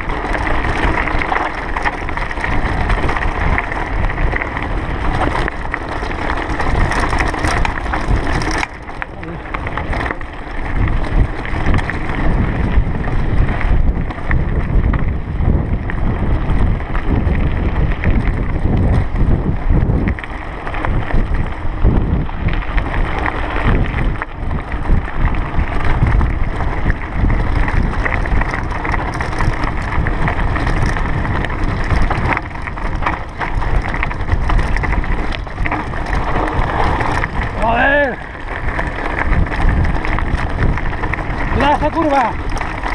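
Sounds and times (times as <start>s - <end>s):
tyres crunching over stones: 0.0s - 12.6s, 26.5s - 42.9s
bike rattling: 0.0s - 42.9s
wind noise on microphone: 0.0s - 42.9s.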